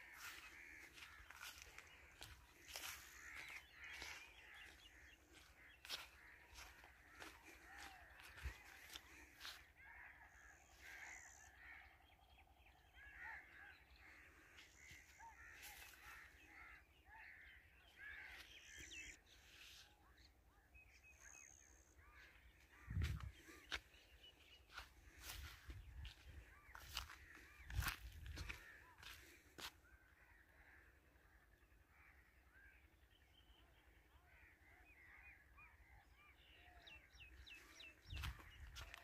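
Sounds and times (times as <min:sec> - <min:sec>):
footsteps on dirt path: 0:00.0 - 0:11.2, 0:14.0 - 0:19.8, 0:21.3 - 0:29.9, 0:37.0 - 0:39.0
birds chirping: 0:00.0 - 0:39.0.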